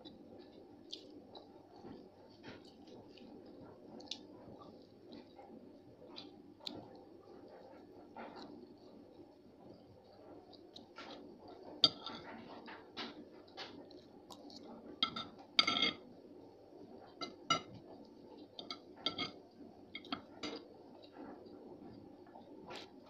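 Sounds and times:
cutlery clinking on ceramic plate: 11.8 - 12.3, 15.0 - 16.0, 17.2 - 17.8, 18.6 - 19.4, 20.0 - 20.6.

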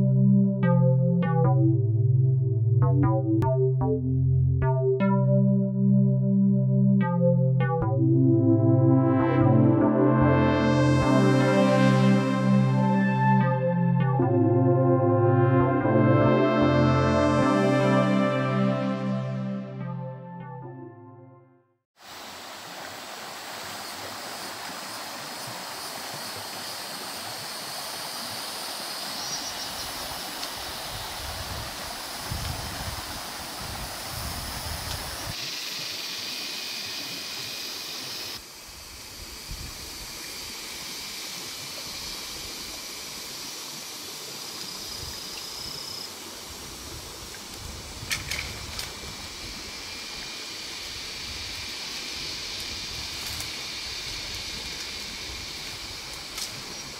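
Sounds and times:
flowing water: 22.0 - 39.2.

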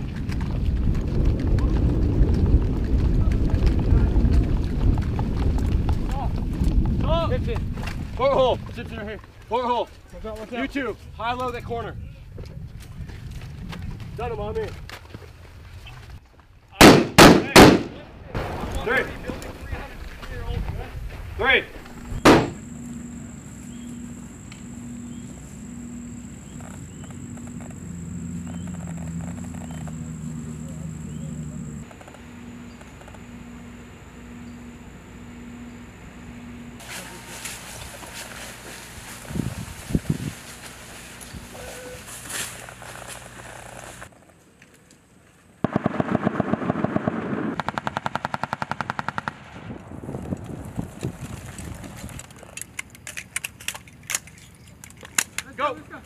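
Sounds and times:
machine gun fire: 16.8 - 19.3, 22.2 - 22.8, 45.6 - 49.7
sharp gunshots: 16.8 - 19.4, 22.2 - 22.7, 45.6 - 49.8
low hum: 18.4 - 44.0
high-pitched insect drone: 21.9 - 44.1
faint clicks and rustles: 50.2 - 56.0.

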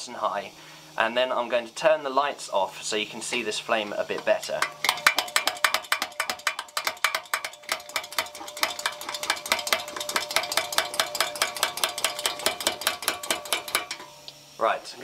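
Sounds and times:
stove hand pump clacking: 4.1 - 14.2.

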